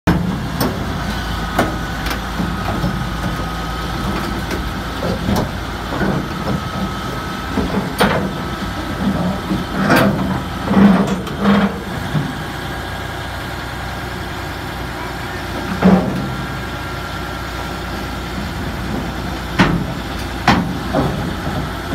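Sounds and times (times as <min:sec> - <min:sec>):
bulldozer diesel engine running: 0:00.0 - 0:21.9
steel tracks clanking: 0:00.1 - 0:12.9, 0:14.3 - 0:21.9.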